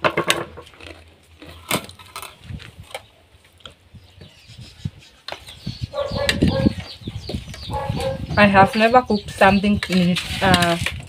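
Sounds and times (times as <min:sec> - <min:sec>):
hen clucking: 0:04.2 - 0:09.8.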